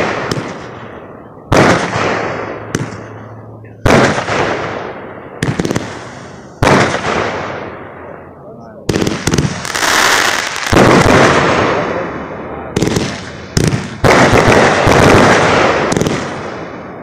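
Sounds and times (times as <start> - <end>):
small firework pops: 0.0 - 0.8, 1.5 - 3.1, 12.8 - 16.4
fireworks booming: 0.0 - 17.0.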